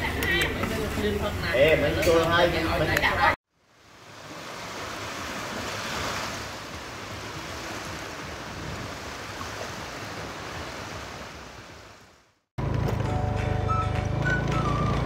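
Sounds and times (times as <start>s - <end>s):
waves breaking on beach: 3.5s - 12.4s.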